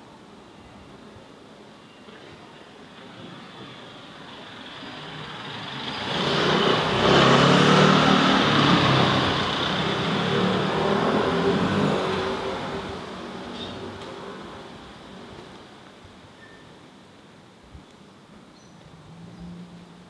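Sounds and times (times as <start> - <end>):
vehicle driving past: 4.6 - 13.6.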